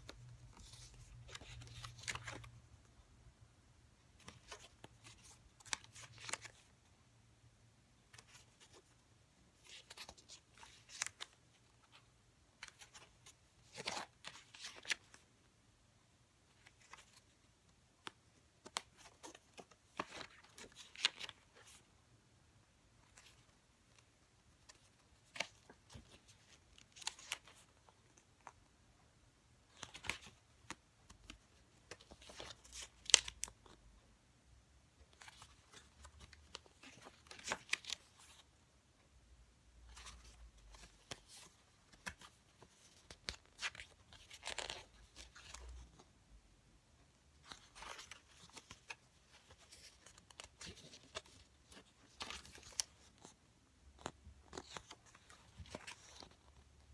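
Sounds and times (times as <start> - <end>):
stiff pages turning: 0.0 - 2.6, 4.2 - 6.8, 8.1 - 15.2, 16.5 - 17.4, 18.0 - 21.8, 23.0 - 28.6, 29.7 - 33.8, 35.1 - 38.5, 39.9 - 46.0, 47.4 - 53.4, 54.0 - 56.7.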